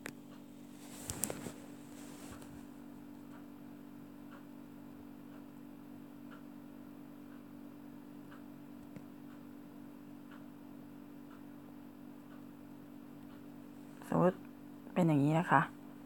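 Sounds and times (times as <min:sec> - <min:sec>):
faint regular ticking: 0:00.0 - 0:16.0
low steady hum: 0:00.0 - 0:16.0.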